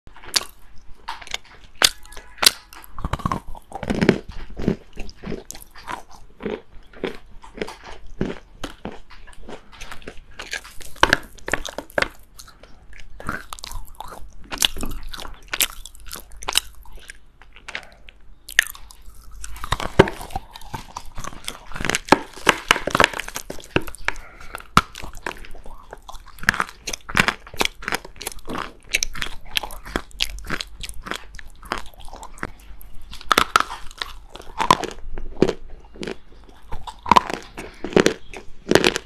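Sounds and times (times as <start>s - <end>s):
chewing crunchy clay: 0.1s - 39.0s.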